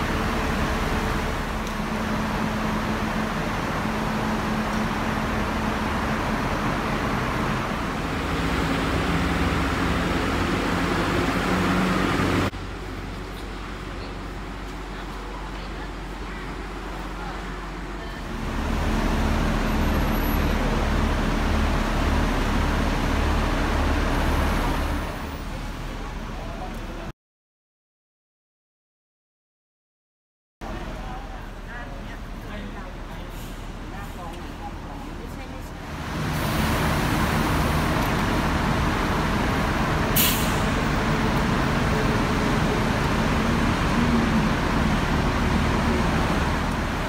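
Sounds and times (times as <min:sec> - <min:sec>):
bus engine idling: 0:00.0 - 0:27.1, 0:30.6 - 0:47.0
road traffic noise: 0:00.0 - 0:27.1, 0:30.6 - 0:47.0
air hiss from bus: 0:40.2 - 0:40.8.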